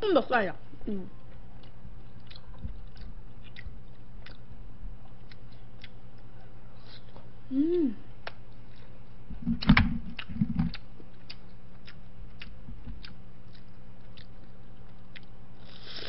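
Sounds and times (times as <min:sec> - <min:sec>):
person chewing food: 0:01.2 - 0:07.3, 0:08.2 - 0:16.0.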